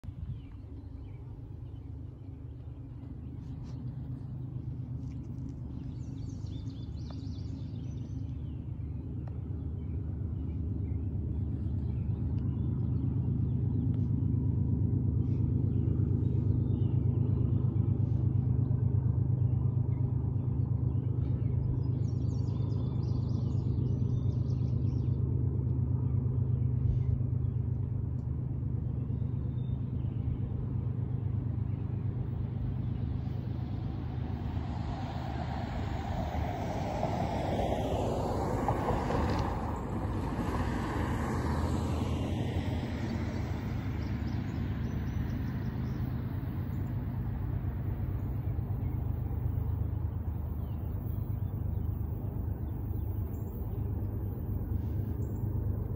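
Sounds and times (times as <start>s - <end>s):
low engine rumble: 0.0s - 55.9s
birds chirping: 41.7s - 55.9s.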